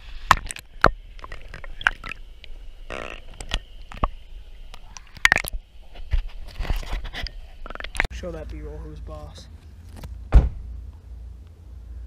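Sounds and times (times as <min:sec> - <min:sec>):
short raspy sound: 0:02.9 - 0:04.1.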